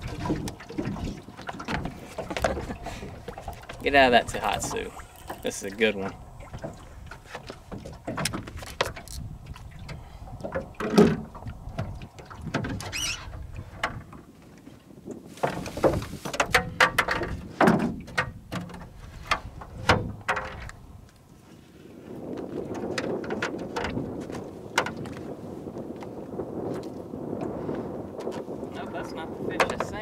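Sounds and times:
water splashes: 0.0 - 14.8
knocks on a boat: 15.4 - 20.6, 29.5 - 30.0.

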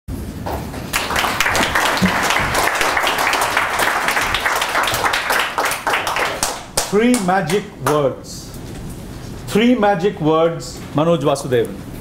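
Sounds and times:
crowd applauding: 0.9 - 8.0.

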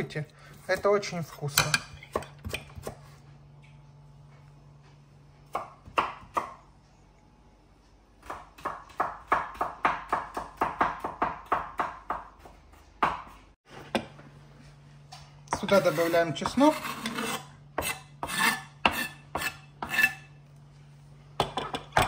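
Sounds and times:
knife chopping on cutting board: 0.7 - 3.1, 5.4 - 6.6, 8.2 - 13.4, 17.8 - 20.2.

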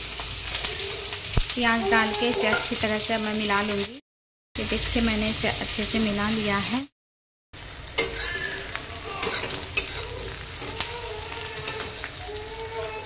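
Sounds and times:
onions sizzling in oil: 0.0 - 4.0, 4.6 - 6.9, 7.6 - 13.0
metal spatula scraping pan: 8.0 - 10.8.

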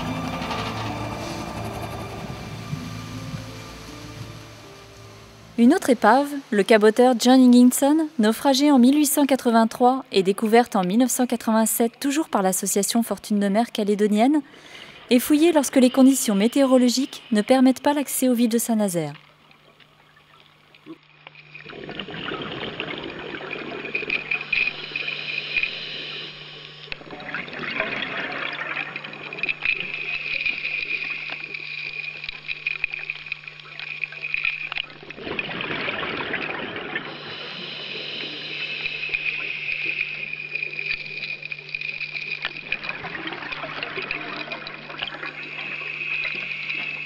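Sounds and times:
underwater water dredge rushing: 0.0 - 5.6, 21.4 - 47.0
steady low hum: 0.0 - 47.0.

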